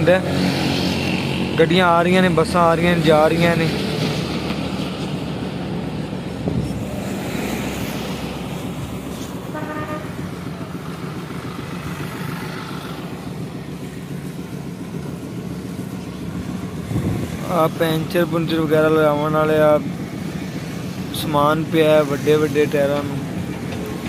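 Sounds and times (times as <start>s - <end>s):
road traffic rumble: 0.0s - 24.0s
vehicle horn: 9.5s - 10.4s.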